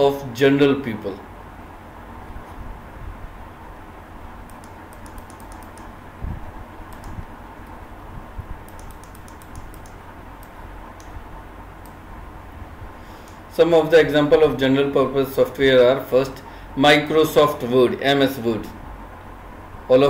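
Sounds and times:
keyboard and mouse clicking: 0:04.5 - 0:05.9, 0:06.9 - 0:07.3, 0:08.6 - 0:11.2.

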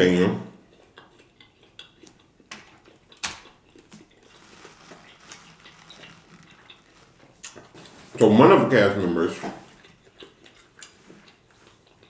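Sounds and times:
mouth sounds of eating: 0:00.0 - 0:12.0
person licking fingers: 0:00.7 - 0:04.4.

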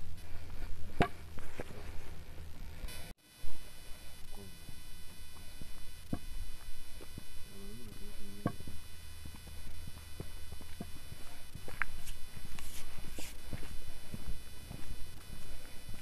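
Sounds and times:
footsteps on dirt: 0:00.0 - 0:02.9, 0:04.7 - 0:16.0
low steady hum: 0:00.0 - 0:16.0
faint voice: 0:04.1 - 0:04.8, 0:07.4 - 0:08.8.

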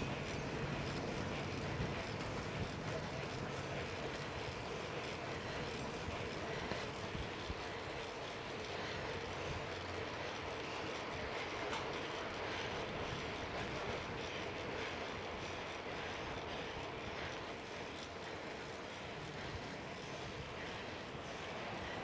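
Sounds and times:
bicycle tyres on paved road: 0:00.0 - 0:22.0.

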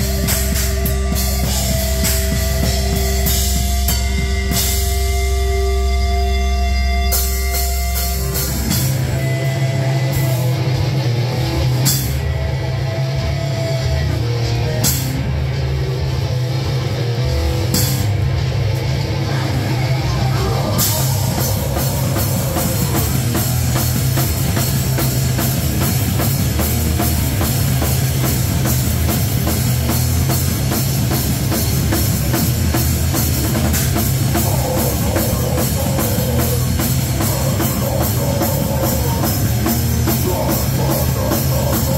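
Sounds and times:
fast driving drum beat: 0:00.0 - 0:12.4, 0:16.8 - 0:41.9
heavy rock band playing: 0:00.0 - 0:41.9.

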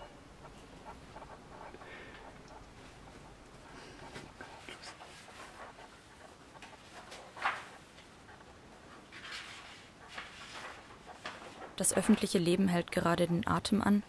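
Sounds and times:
papers rustling: 0:03.9 - 0:12.5.

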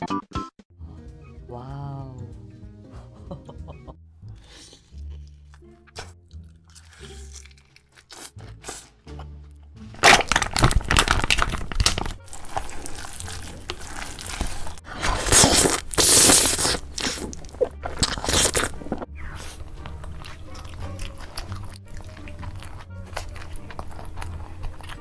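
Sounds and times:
background music: 0:00.0 - 0:25.0
crunching and chewing: 0:04.6 - 0:09.3, 0:10.0 - 0:25.0
slurping noodles: 0:12.2 - 0:25.0.

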